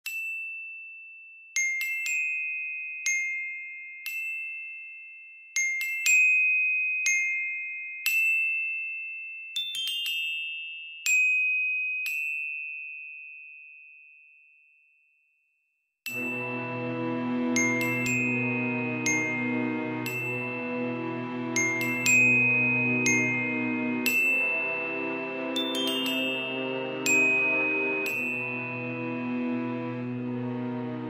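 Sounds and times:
bell-like chime notes: 16.1s - 30.5s.

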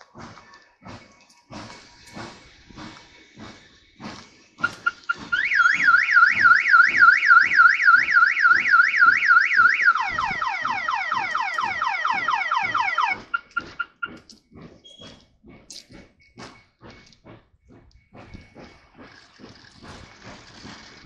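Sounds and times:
train wheels clattering: 0.0s - 21.0s
car alarm wailing: 4.6s - 14.2s.

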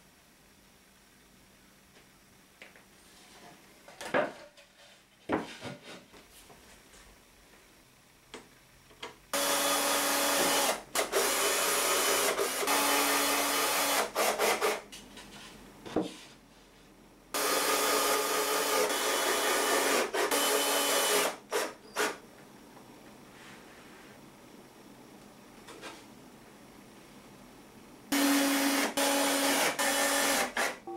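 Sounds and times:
cordless drill driving screws: 9.4s - 14.8s, 17.4s - 22.2s, 28.2s - 30.8s.

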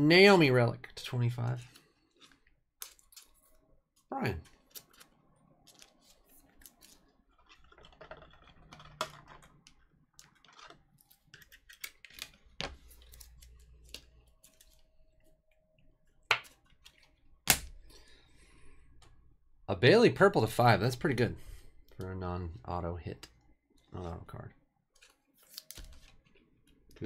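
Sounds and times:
cards clicking and rustling: 4.4s - 14.8s.

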